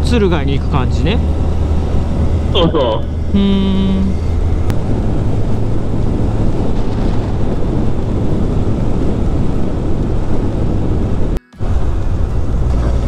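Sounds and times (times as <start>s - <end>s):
road noise: 0.0s - 13.0s
wind rushing on microphone: 4.1s - 13.0s.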